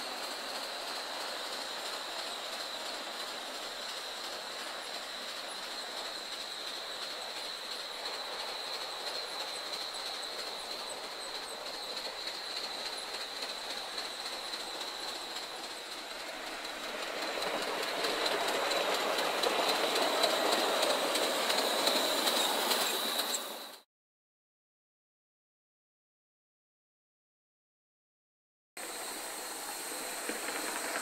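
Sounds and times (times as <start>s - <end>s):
model train wheels clicking: 0.0s - 23.8s, 28.8s - 31.0s.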